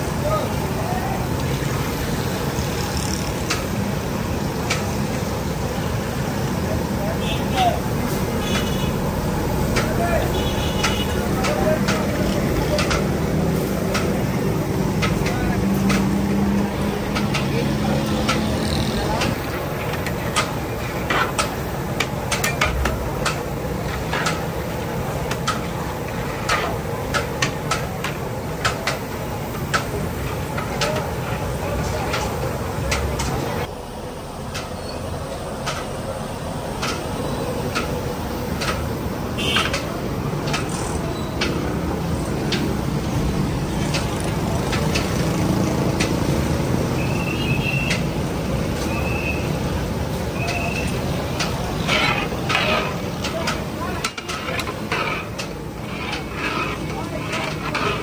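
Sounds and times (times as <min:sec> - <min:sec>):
steady background noise: 0:00.0 - 0:58.0
traffic running: 0:00.0 - 0:58.0
metal utensils clinking on dishes: 0:51.4 - 0:58.0.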